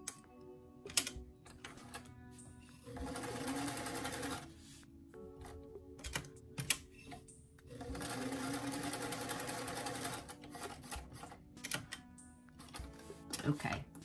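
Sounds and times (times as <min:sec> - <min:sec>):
sewing machine stitching: 0:02.9 - 0:04.4, 0:07.7 - 0:11.4.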